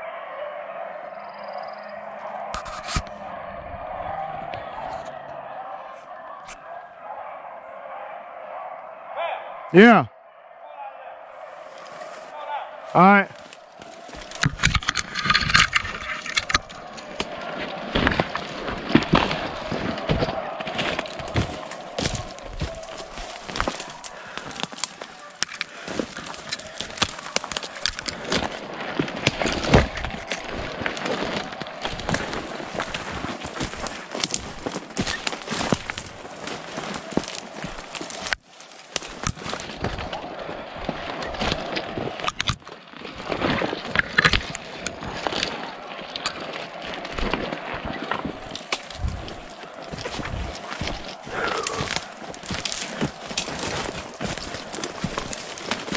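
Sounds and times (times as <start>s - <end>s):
footsteps crunching through dry leaves: 13.3s - 14.4s, 16.7s - 41.8s, 46.9s - 55.9s
twigs snapping: 13.3s - 55.9s.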